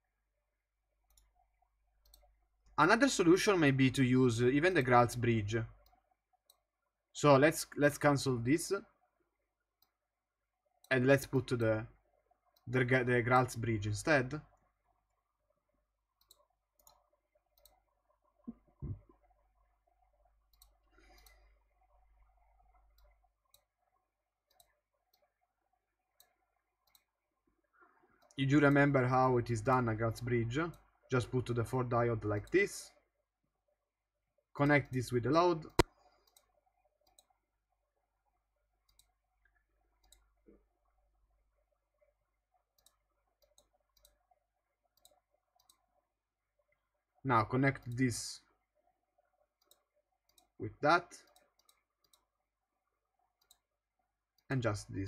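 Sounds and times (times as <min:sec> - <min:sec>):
computer mouse clicks: 0:01.0 - 0:01.4, 0:02.0 - 0:02.8, 0:16.2 - 0:17.8, 0:20.4 - 0:25.4, 0:26.1 - 0:27.2, 0:34.7 - 0:37.4, 0:38.8 - 0:40.6, 0:42.7 - 0:46.0, 0:49.6 - 0:50.6, 0:51.2 - 0:52.4, 0:53.3 - 0:53.7.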